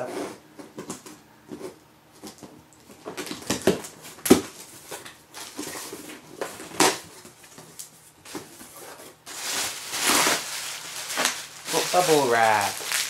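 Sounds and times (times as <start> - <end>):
cardboard rustling and ripping: 3.1 - 7.6, 8.3 - 13.0
packing tape pulled off: 9.3 - 13.0.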